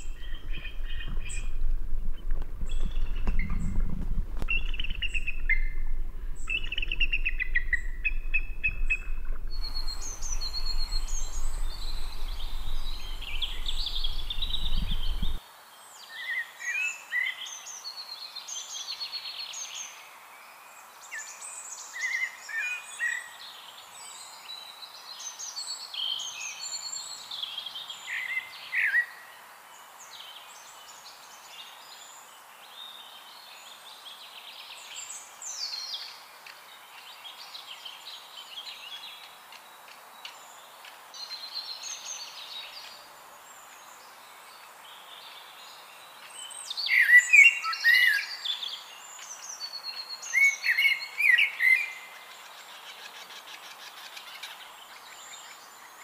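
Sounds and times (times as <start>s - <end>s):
low rumble: 0.0s - 15.4s
songbirds chirping and singing: 0.0s - 15.4s.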